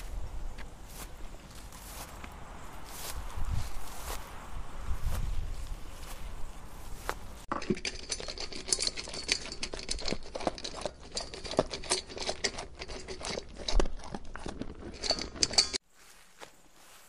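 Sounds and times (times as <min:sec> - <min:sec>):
camel chewing: 0:07.8 - 0:15.8.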